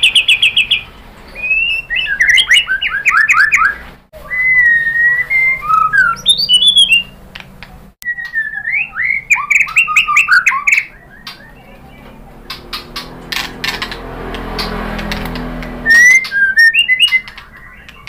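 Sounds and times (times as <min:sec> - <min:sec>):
bird singing whistles: 0:00.0 - 0:07.2, 0:08.0 - 0:11.8, 0:15.8 - 0:18.0.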